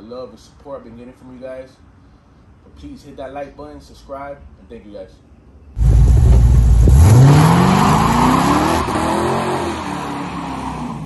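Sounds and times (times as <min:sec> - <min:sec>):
car engine revving accelerating: 0:05.8 - 0:11.0.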